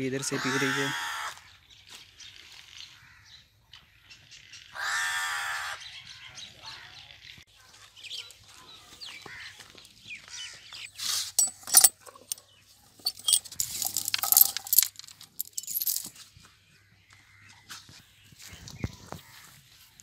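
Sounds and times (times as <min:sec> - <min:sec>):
iron chain rattling and clinking: 0:10.8 - 0:16.1.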